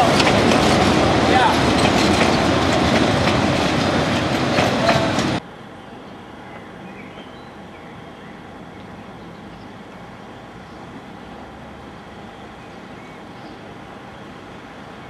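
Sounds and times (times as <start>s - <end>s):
wheels clicking over rail joints: 0.0s - 5.4s
train coaches rumbling past: 0.0s - 15.0s.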